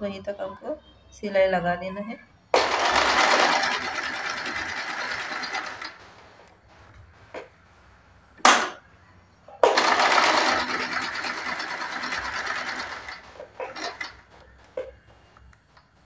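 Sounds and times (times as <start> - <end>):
sewing machine stitching: 2.6 - 6.2, 9.6 - 14.5.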